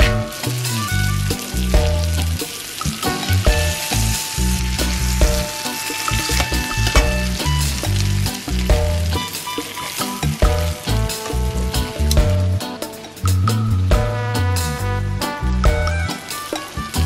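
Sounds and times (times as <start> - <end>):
fish frying in butter: 0.0 - 14.1, 15.4 - 17.0
background music: 0.0 - 17.0.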